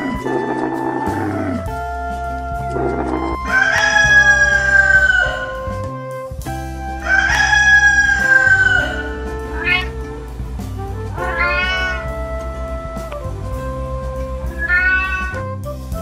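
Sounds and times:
background music with beat: 0:00.0 - 0:16.0
rooster crowing: 0:03.0 - 0:05.7, 0:07.0 - 0:10.2, 0:11.1 - 0:12.1
cat meowing: 0:08.2 - 0:10.0, 0:11.1 - 0:12.1, 0:14.6 - 0:15.4.

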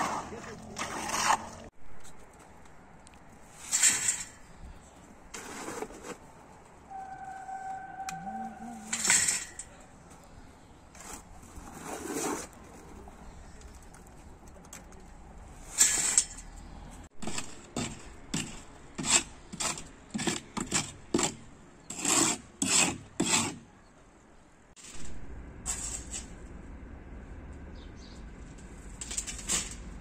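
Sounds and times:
short scraping strokes: 0:24.8 - 0:26.5.

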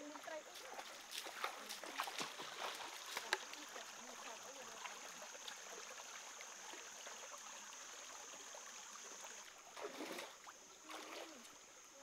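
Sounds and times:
feet wading through water: 0:00.0 - 0:11.8
stream running over stones: 0:00.0 - 0:12.0
foot splashing in shallows: 0:00.6 - 0:03.6, 0:09.8 - 0:11.5.

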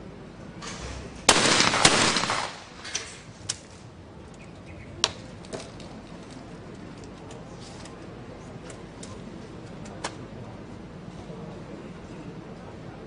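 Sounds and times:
shotgun shots echoing: 0:01.3 - 0:03.2.

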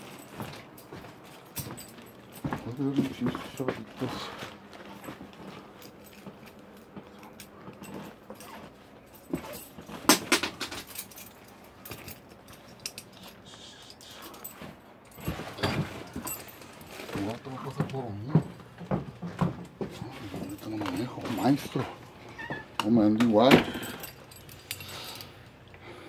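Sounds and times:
small hard objects jangling: 0:19.9 - 0:22.0.

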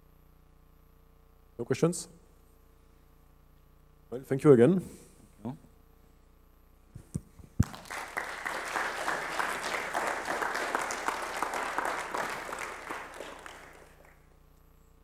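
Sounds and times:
audience applauding: 0:07.6 - 0:14.3.

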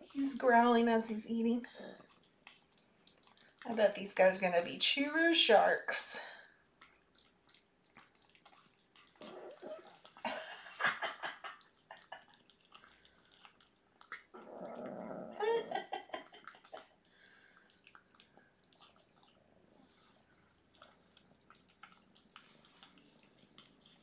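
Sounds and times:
kittens chewing wet food: 0:00.0 - 0:05.1, 0:06.2 - 0:24.0
kitten growling: 0:09.2 - 0:10.0, 0:14.3 - 0:15.8.

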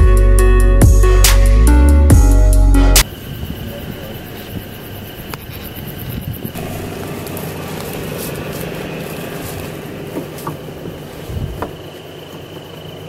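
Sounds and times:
pickup engine rumbling: 0:00.0 - 0:13.0
high trill of insects: 0:03.0 - 0:13.0.

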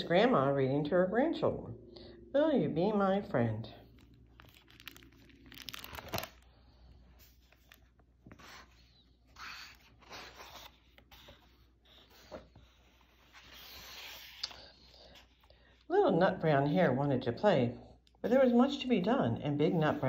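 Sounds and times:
book pages turning: 0:03.9 - 0:15.5.

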